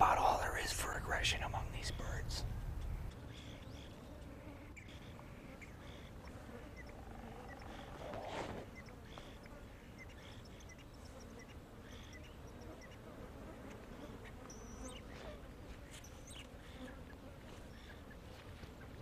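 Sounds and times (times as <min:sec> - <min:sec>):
insect buzzing: 0:01.6 - 0:18.4
faint high bird chirps: 0:04.8 - 0:13.0, 0:14.2 - 0:15.3.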